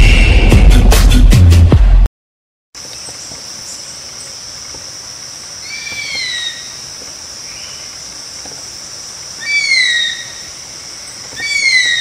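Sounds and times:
high insect buzz: 2.8 - 12.0
bird whistled calls: 5.6 - 6.7, 11.4 - 12.0.

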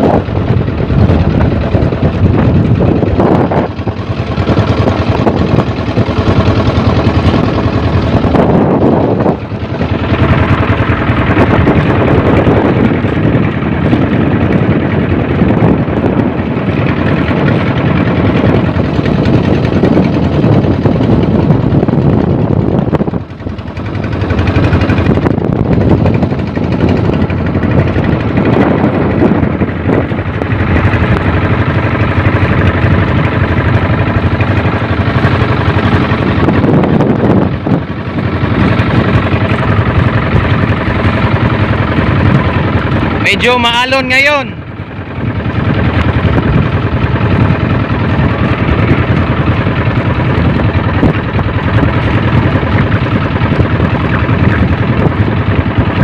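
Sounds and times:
boat engine running: 0.0 - 56.0.

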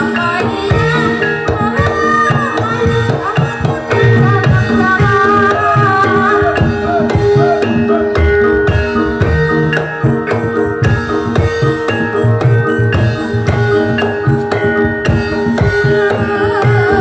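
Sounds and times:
woman singing ornamented melody: 0.0 - 8.6, 15.5 - 17.0
hand drums playing busy rhythm: 0.0 - 17.0
ringing metallophone notes: 0.0 - 17.0.

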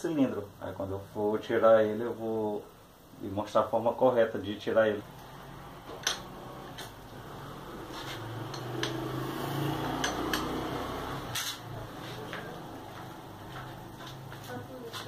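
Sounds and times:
low steady hum: 0.0 - 15.0
light scraping: 7.8 - 8.7
metallic clicks of hand tool: 8.5 - 9.0, 10.0 - 10.6.

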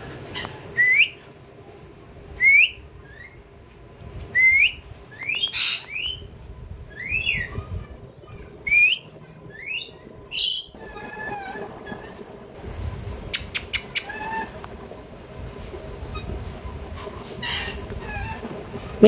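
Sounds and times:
harsh parakeet call: 5.2 - 6.2.

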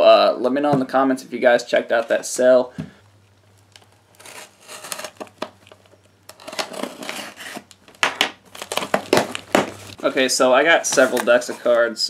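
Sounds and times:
packing tape tearing: 3.7 - 10.0.

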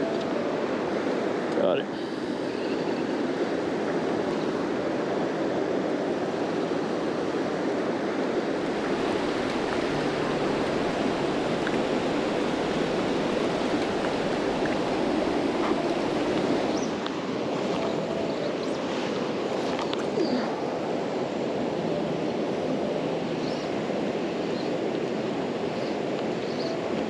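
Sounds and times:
river water rushing over rocks: 0.0 - 27.0.

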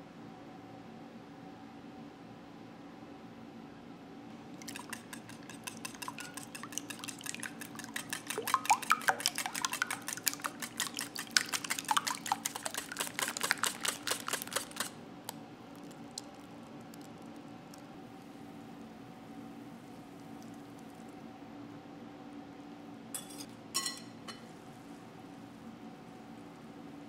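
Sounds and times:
whisk beating eggs in glass bowl: 4.6 - 15.0.

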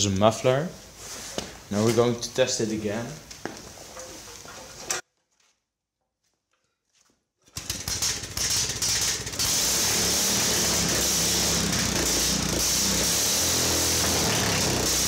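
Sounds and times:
small engine starting and running: 7.6 - 15.0.

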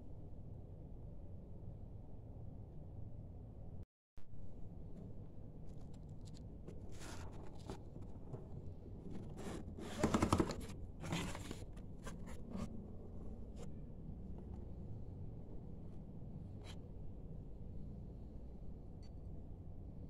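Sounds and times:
cardboard scraping and rustling: 5.7 - 13.7.

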